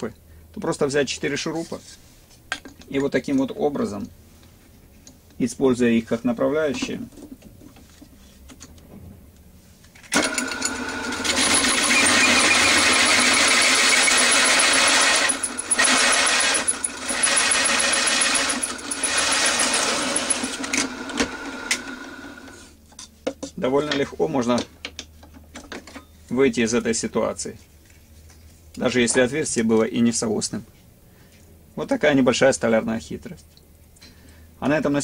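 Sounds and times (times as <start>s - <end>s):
drill press cutting wood: 10.1s - 22.7s.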